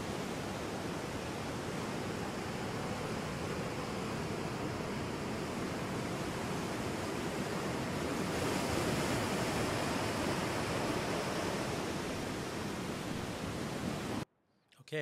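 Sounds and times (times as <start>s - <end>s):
ocean waves on shore: 0.0s - 14.2s.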